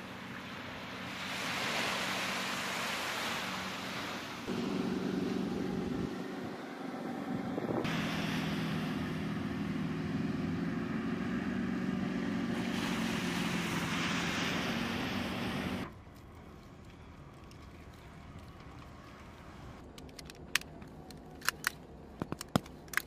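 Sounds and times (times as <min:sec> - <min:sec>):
wind: 0:00.0 - 0:23.0
diesel engine humming: 0:04.5 - 0:16.0
water hissing: 0:07.9 - 0:09.7, 0:12.5 - 0:15.8.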